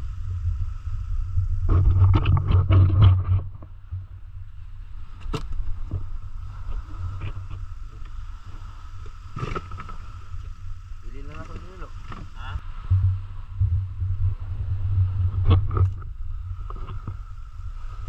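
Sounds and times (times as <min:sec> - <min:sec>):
steady low rumble: 0:00.0 - 0:18.0
thin steady hum: 0:00.0 - 0:18.0
knocks and clicks in boat: 0:01.7 - 0:04.1, 0:05.1 - 0:06.1, 0:09.0 - 0:10.0, 0:11.2 - 0:12.4, 0:15.3 - 0:17.3.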